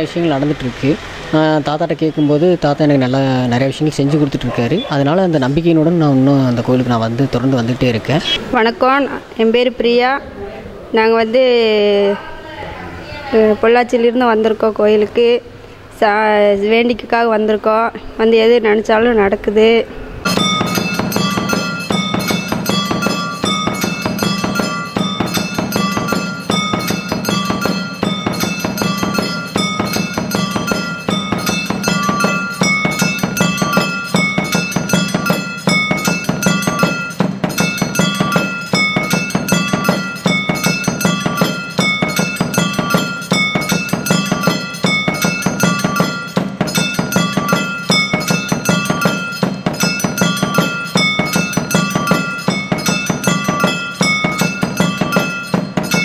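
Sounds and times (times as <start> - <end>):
bell-like chiming melody: 20.2 - 56.0
quick even strikes: 20.2 - 56.0.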